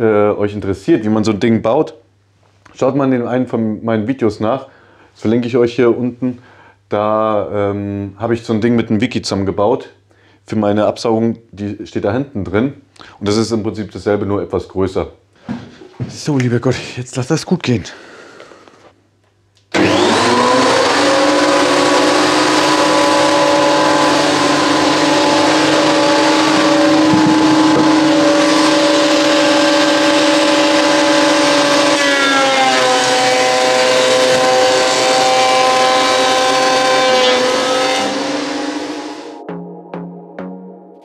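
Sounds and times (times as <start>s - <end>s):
thickness planer motor whine: 19.7s - 39.5s
board being planed: 19.8s - 39.3s.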